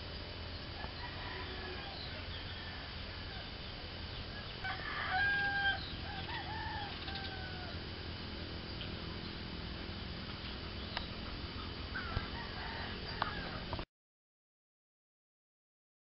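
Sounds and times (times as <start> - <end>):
rooster crowing: 0.8 - 3.6, 4.3 - 8.1, 11.9 - 13.8.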